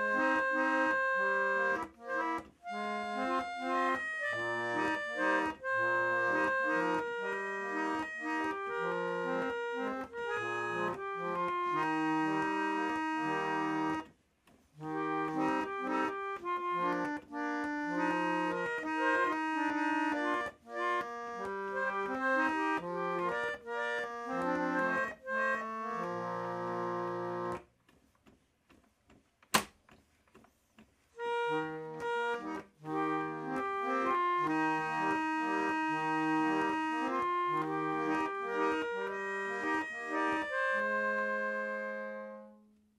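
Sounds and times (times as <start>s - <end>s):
reed organette playing a tune: 0.0s - 14.1s, 14.8s - 27.6s, 31.2s - 42.6s
sharp click: 29.4s - 30.9s.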